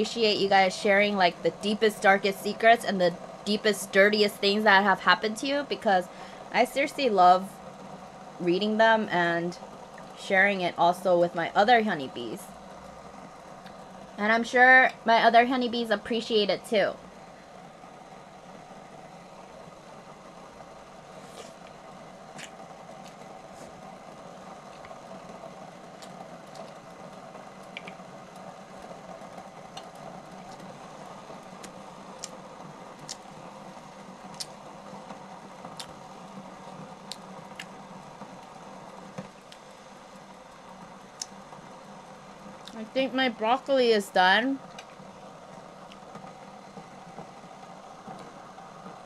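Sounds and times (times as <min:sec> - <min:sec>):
broth simmering in a pot: 0:00.0 - 0:49.0.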